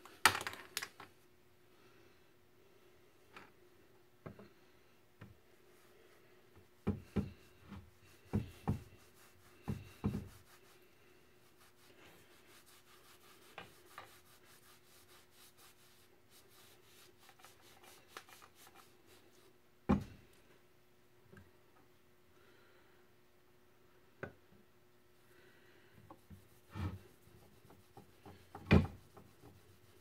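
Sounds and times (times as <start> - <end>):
faint steady hum: 0.0 - 30.0
cloth rag rubbing metal pipe: 7.1 - 19.5, 26.2 - 30.0.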